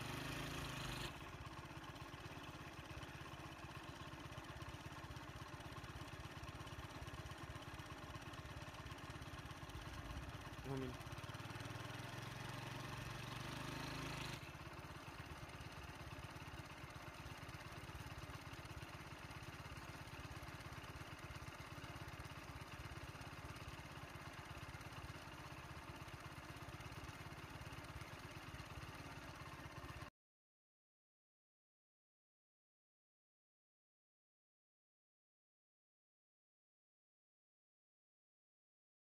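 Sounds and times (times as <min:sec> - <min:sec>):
vehicle engine idling: 0:00.0 - 0:30.1.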